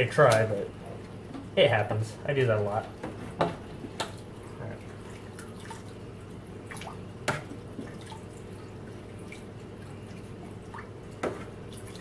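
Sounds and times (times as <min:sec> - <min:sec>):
water dripping into aquarium: 0:03.9 - 0:12.0.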